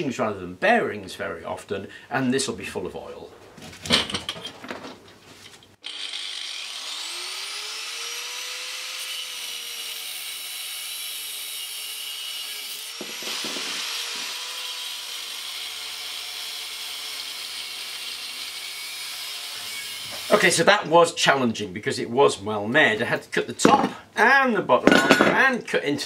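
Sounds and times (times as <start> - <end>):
angle grinder cutting steel: 5.8 - 20.4.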